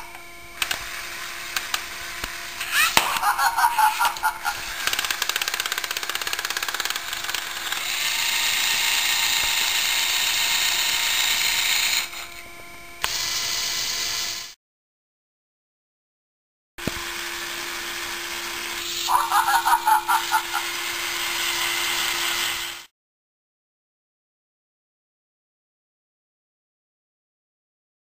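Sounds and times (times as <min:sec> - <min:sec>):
electric motors driving plastic gears: 0:00.0 - 0:14.6, 0:16.8 - 0:22.9.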